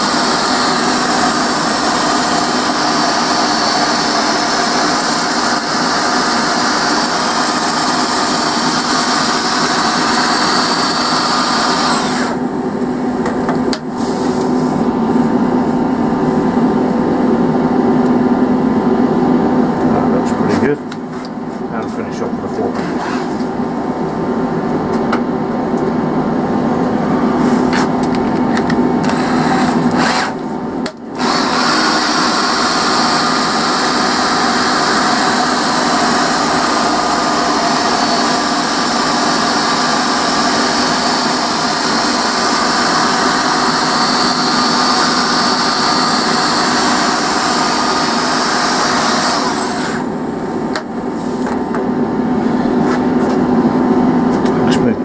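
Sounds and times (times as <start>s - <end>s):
power sander on wood: 0.0s - 12.5s, 29.0s - 30.4s, 31.2s - 50.2s
lathe humming: 0.0s - 55.0s.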